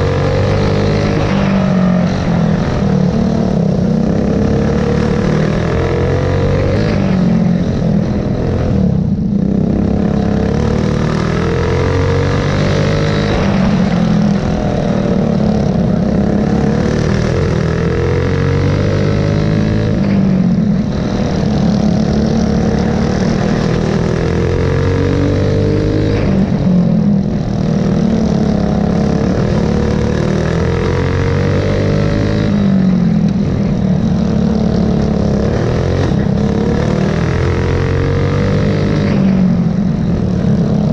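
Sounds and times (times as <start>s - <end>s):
go-kart engine at full throttle: 0.0s - 40.9s.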